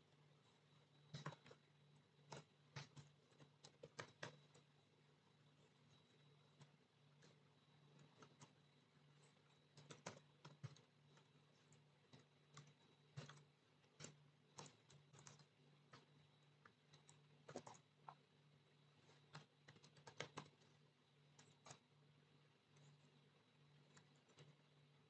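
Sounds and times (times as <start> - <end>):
faint keyboard typing: 0.0 - 25.0
low steady hum: 0.0 - 25.0.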